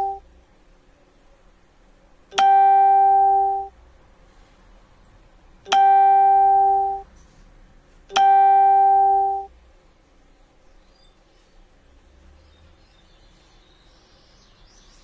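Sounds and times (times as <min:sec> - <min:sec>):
electronic tone: 0:00.0 - 0:00.2, 0:02.3 - 0:03.7, 0:05.7 - 0:07.0, 0:08.1 - 0:09.5.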